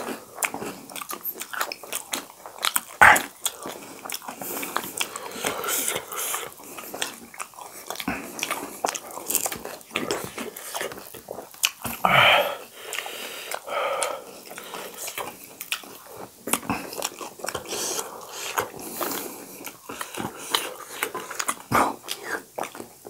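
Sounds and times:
mouth clicks while chewing: 0.0 - 12.0, 12.8 - 23.0.

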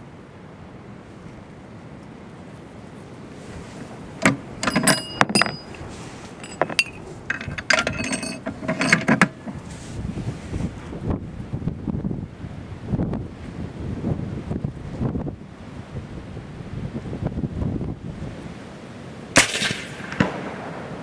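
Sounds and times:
rifle bolt metal clacks: 4.2 - 5.8, 6.4 - 9.6.

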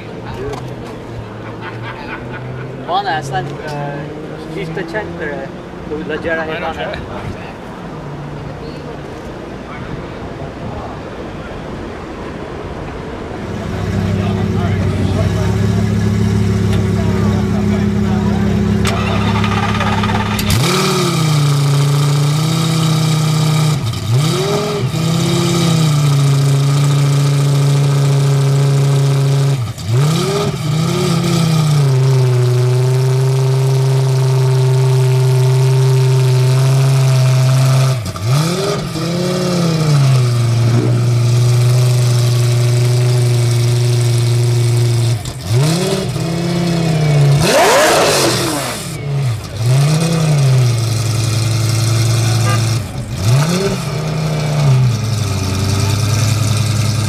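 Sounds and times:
race car engine idling: 13.4 - 57.0
engine revving: 13.5 - 57.0.

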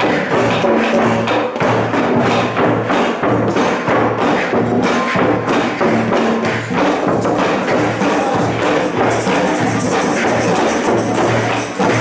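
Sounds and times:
hand drums: 0.0 - 12.0
wood block clacks: 0.0 - 12.0
tambourine: 3.3 - 12.0.

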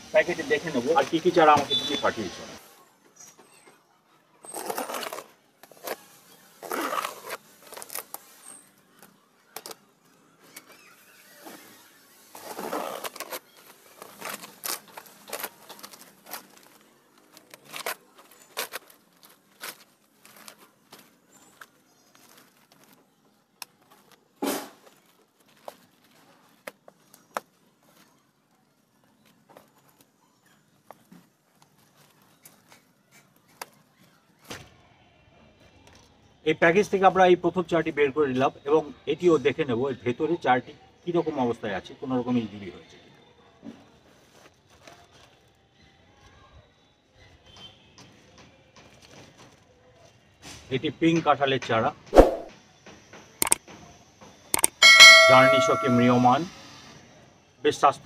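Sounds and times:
packaging rustling and tearing: 4.5 - 9.9, 10.5 - 28.1
small crackles and clicks: 12.4 - 34.5.

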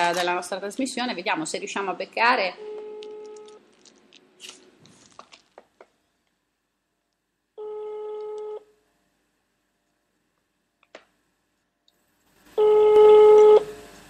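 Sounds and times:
telephone ringback tone: 2.6 - 3.6, 7.6 - 8.7, 12.6 - 13.7.

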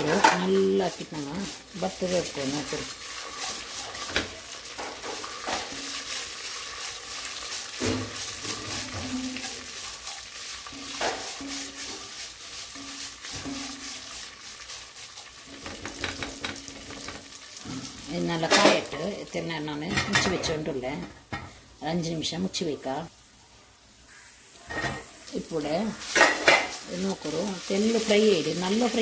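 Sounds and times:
spatula scraping a metal pot: 0.0 - 17.2, 26.0 - 29.0
noodles sizzling in a pot: 0.0 - 29.0.

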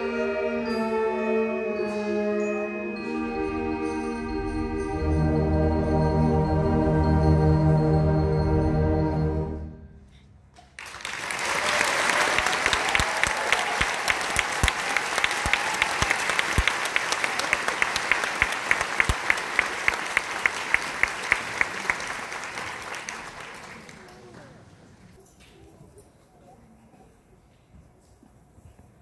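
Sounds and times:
close sharp hand claps: 10.7 - 24.2
audience applause: 10.8 - 24.7.

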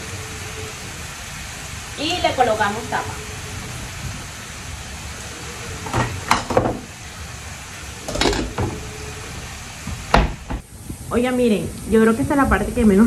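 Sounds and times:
pork sizzling in a pan: 0.0 - 13.0.

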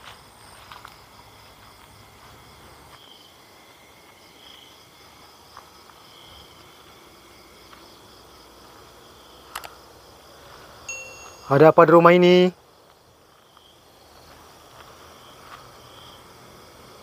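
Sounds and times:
crickets and insects chirring: 0.0 - 17.0
faint clicks: 9.5 - 9.8.

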